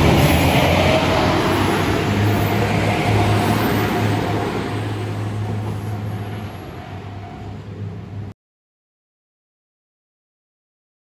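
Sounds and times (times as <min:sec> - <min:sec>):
diesel train engines droning: 0:00.0 - 0:08.3.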